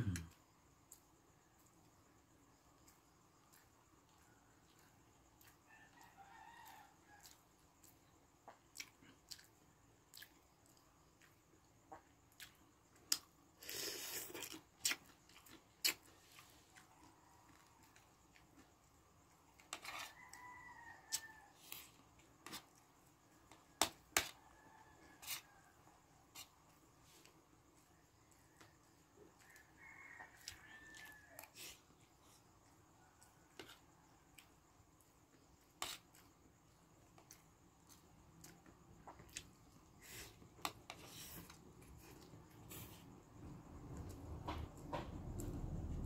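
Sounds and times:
chewing: 2.8s - 18.7s, 37.1s - 43.1s
distant rooster crowing: 5.4s - 7.5s, 19.8s - 22.0s, 23.8s - 26.0s, 28.2s - 31.9s, 42.0s - 46.0s.

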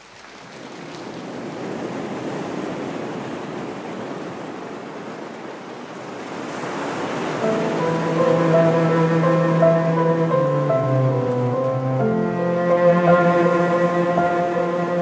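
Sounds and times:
ocean surf rushing: 0.6s - 15.0s
soft sustained musical notes: 7.4s - 15.0s.

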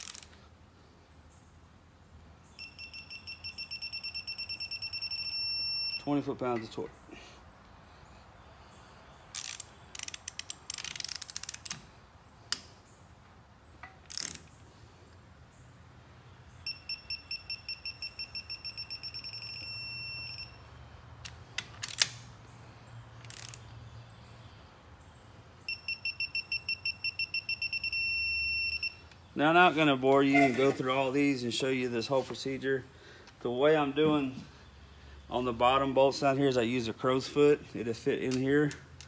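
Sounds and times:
ratchet clicks: 0.0s - 0.4s, 9.3s - 11.8s, 13.9s - 14.5s, 23.2s - 23.7s
torque wrench rapid high beeps: 2.6s - 6.1s, 16.7s - 20.6s, 25.7s - 29.0s.

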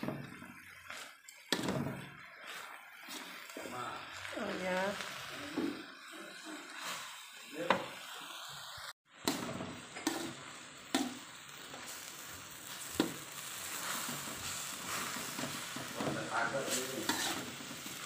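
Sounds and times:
metal spatula scraping a pan: 0.0s - 3.8s, 6.0s - 7.3s, 9.3s - 11.2s, 11.8s - 18.0s
greens sizzling in a wok: 0.0s - 18.0s.

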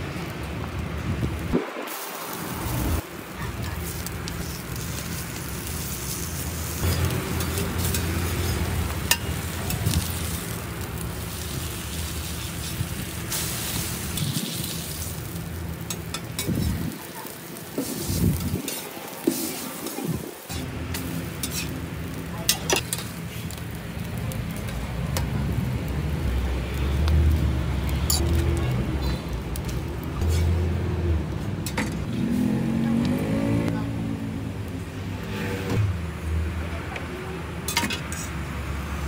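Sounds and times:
food sizzling on griddle: 0.0s - 33.4s
metal spatula scraping: 17.8s - 21.8s, 30.2s - 30.6s.

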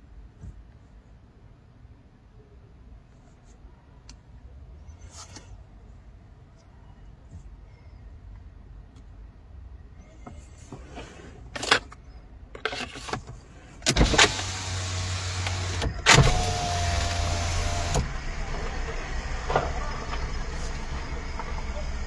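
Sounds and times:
car electric window motor: 13.9s - 21.4s
steady low hum: 14.0s - 22.0s.

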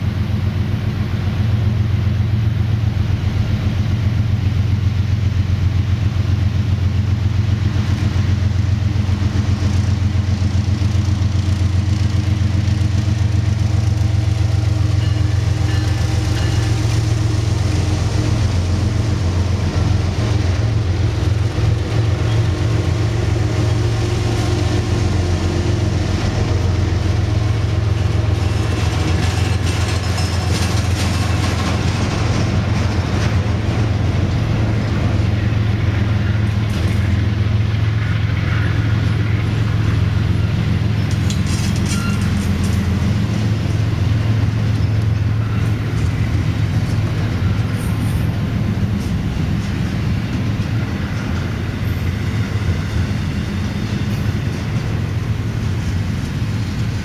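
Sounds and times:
diesel locomotive engine drone: 0.0s - 57.0s
train wheels clattering on rails: 0.0s - 57.0s.

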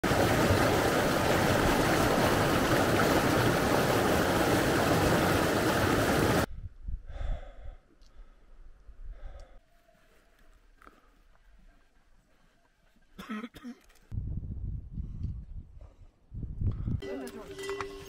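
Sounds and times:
running water rushing: 0.0s - 6.5s.

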